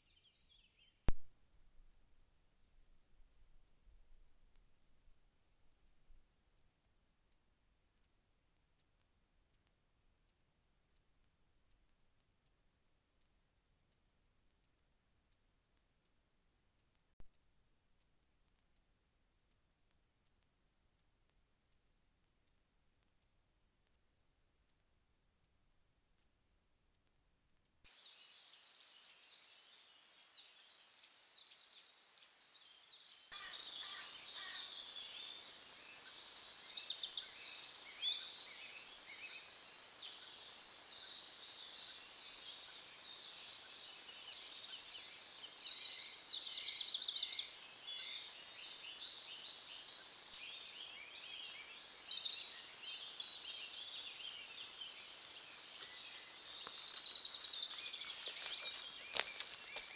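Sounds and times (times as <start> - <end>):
songbirds singing: 27.9 - 59.9
steady hiss: 34.2 - 57.8.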